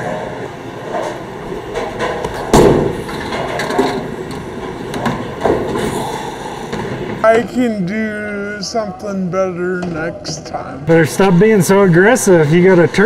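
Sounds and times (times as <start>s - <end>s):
bowling ball rolling: 0.0s - 7.2s
bowling alley background noise: 0.0s - 13.0s
bowling ball thud: 2.0s - 4.0s.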